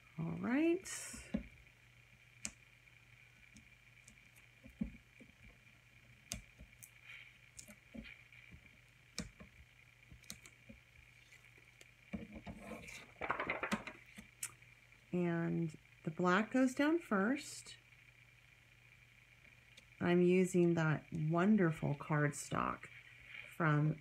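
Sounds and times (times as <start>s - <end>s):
steady low hum: 0.0s - 24.0s
card rustling: 12.4s - 14.2s.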